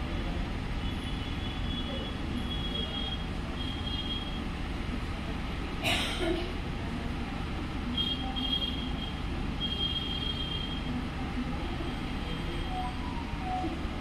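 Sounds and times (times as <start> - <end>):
low rumbling background noise: 0.0 - 14.0.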